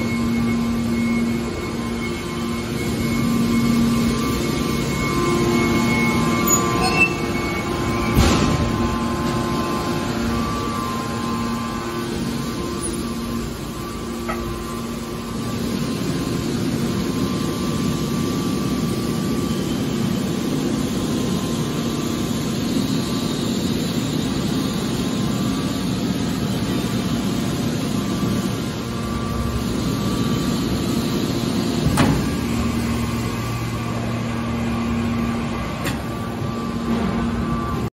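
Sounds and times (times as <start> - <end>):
deeper hum: 0.0 - 17.9
hydraulic baler humming: 0.0 - 37.9.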